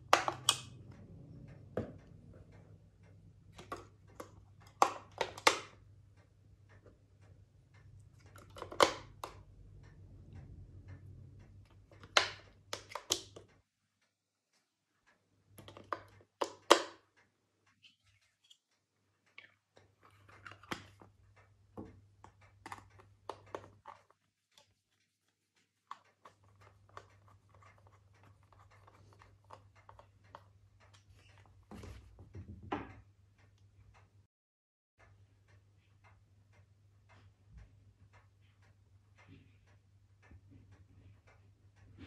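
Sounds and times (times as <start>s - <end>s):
screwdriver ticking: 21.3s - 31.5s.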